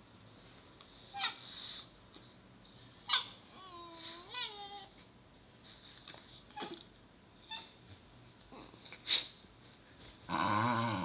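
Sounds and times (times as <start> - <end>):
dog whimpering: 2.7 - 5.0, 6.5 - 7.8
dog growling: 10.3 - 11.0.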